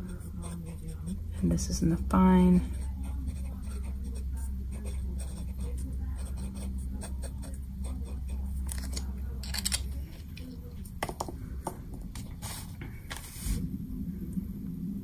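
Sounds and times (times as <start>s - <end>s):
fountain pen scratching paper: 0.0s - 1.2s, 2.6s - 8.9s.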